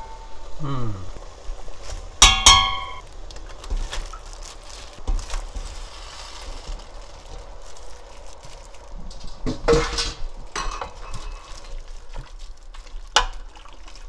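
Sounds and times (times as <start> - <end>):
metal pot ringing clink: 0.0 - 0.5, 2.2 - 3.0
knocks and rustling: 1.9 - 12.5.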